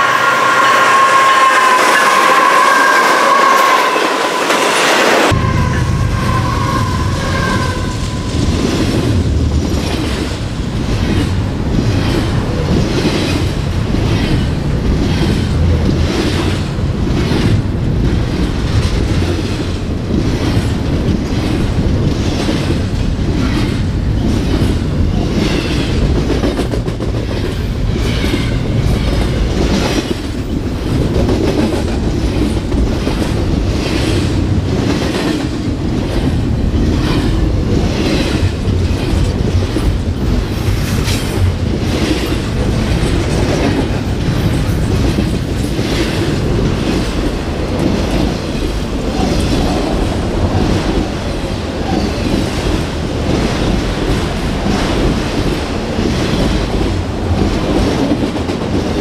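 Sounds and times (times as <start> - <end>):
freight train rumbling past: 0.0 - 59.0.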